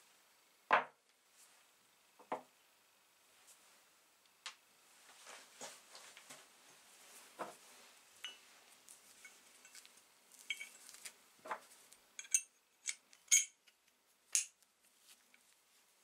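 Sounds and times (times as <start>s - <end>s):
steel parts clinking: 9.2s - 11.0s, 12.2s - 14.6s.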